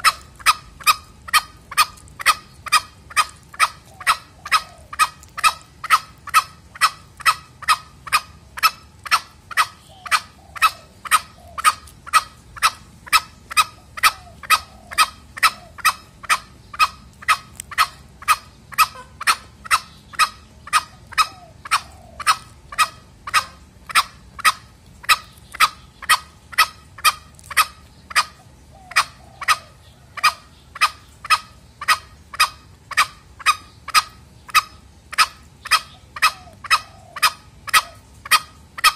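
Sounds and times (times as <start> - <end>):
fainter lower bird calls: 0.0 - 38.9
junglefowl sharp calls: 0.0 - 38.9.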